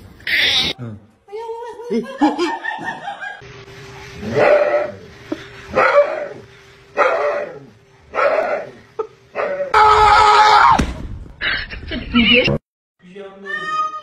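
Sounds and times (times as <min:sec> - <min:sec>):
steady hum: 0:02.0 - 0:09.8.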